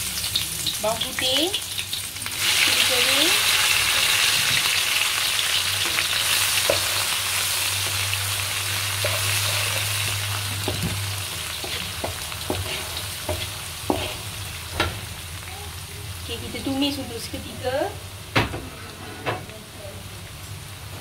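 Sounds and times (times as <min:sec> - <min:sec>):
aromatics sizzling in hot oil: 0:00.0 - 0:21.0
wooden spatula scraping pan: 0:09.0 - 0:14.3.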